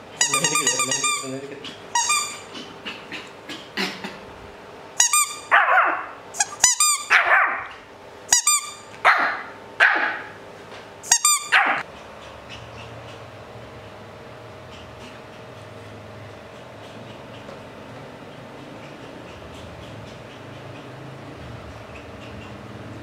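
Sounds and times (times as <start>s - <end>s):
puppy barking and squeaking: 0.2s - 3.3s, 5.0s - 10.4s, 11.0s - 13.3s, 16.5s - 21.1s, 21.7s - 23.0s.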